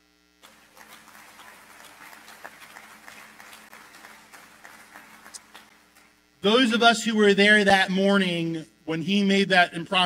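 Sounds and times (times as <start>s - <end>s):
faint audience applause: 0.4s - 6.2s.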